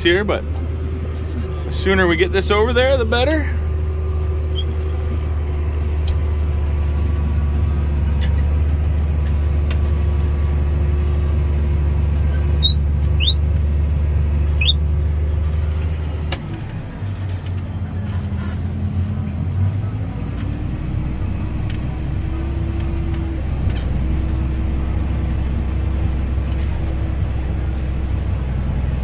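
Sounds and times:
deep steady hum: 0.0s - 29.0s
tractor engine running under load: 0.0s - 29.0s
high rising chirps: 12.6s - 13.4s, 14.6s - 14.8s.

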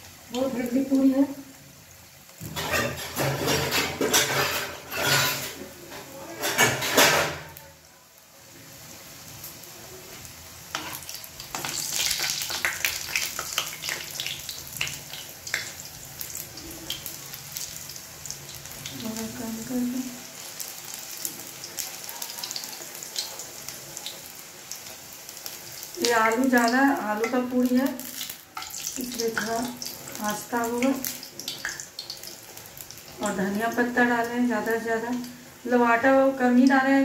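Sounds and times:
food sizzling in hot oil: 0.0s - 37.0s
spoon stirring oil: 10.7s - 17.8s, 21.7s - 33.4s.

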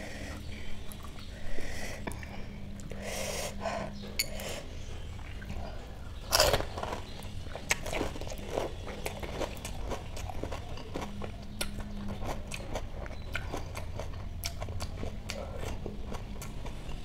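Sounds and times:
crisp shells crunching being chewed: 6.2s - 16.9s.

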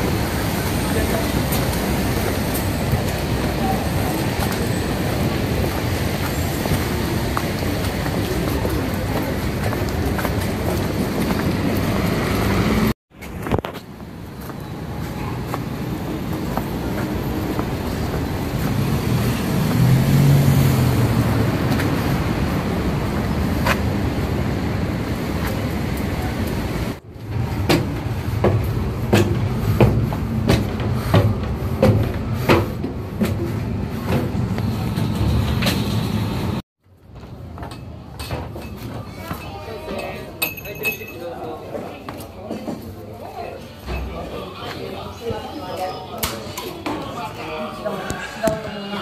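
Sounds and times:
footsteps on metal-edged stairs: 0.0s - 18.9s, 27.0s - 40.8s
street traffic: 0.0s - 49.0s.

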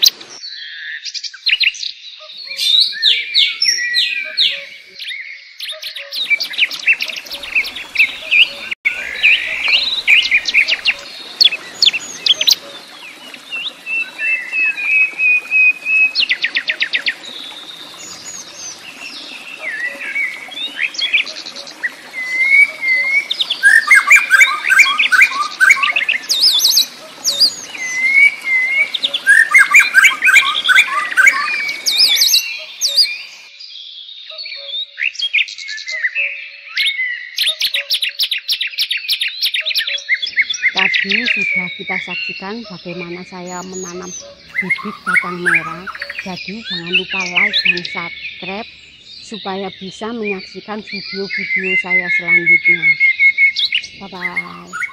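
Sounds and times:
small birds chirping and trilling: 0.0s - 54.9s.

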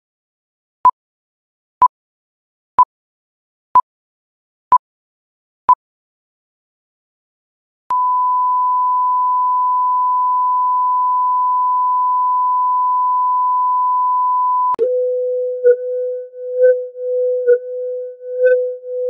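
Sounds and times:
electronic test tone: 7.9s - 19.0s.

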